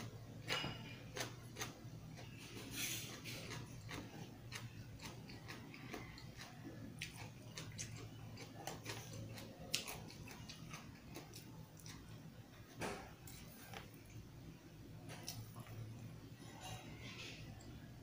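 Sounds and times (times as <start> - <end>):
close chewing with mouth clicks: 0.0 - 12.2
steady low hum: 0.0 - 18.0.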